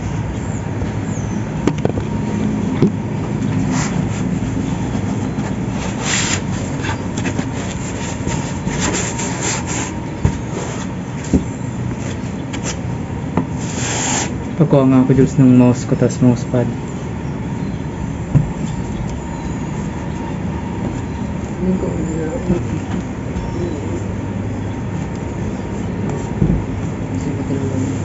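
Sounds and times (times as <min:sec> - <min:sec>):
steady background hum: 0:00.0 - 0:28.0
packaging rustling and scraping: 0:03.6 - 0:12.8.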